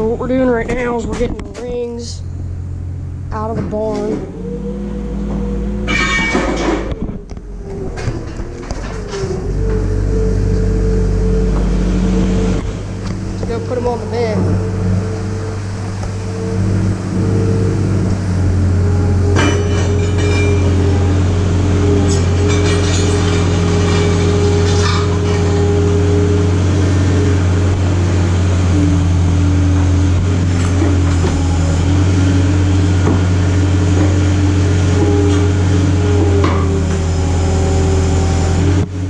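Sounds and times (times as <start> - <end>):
loader engine running steadily: 0.0 - 39.0
sharp metallic clanks: 5.8 - 6.9, 19.4 - 20.9.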